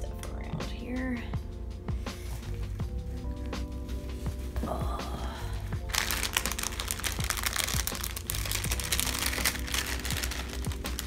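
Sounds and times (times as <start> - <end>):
background music: 0.0 - 11.0
plastic bags crinkling: 5.9 - 11.0.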